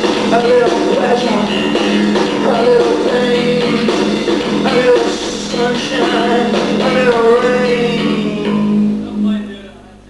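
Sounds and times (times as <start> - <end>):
rock band playing live: 0.0 - 9.5.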